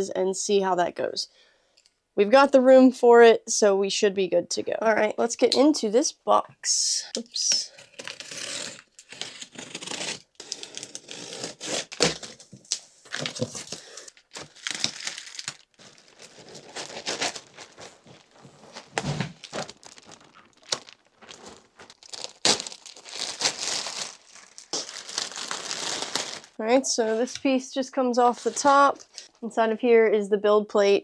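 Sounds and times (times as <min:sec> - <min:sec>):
plastic bag crinkling: 0:11.8 - 0:26.6.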